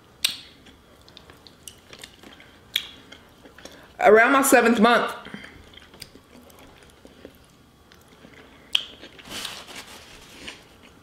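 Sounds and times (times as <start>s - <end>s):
quiet chewing: 0.6s - 4.0s, 5.3s - 9.6s.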